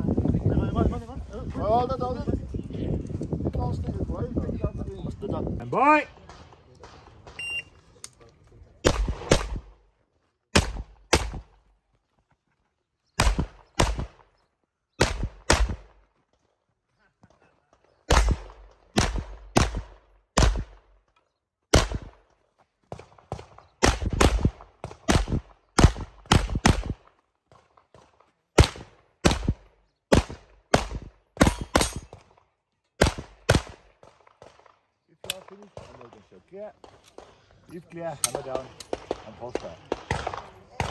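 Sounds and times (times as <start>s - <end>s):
handgun shots: 30.1s - 32.2s.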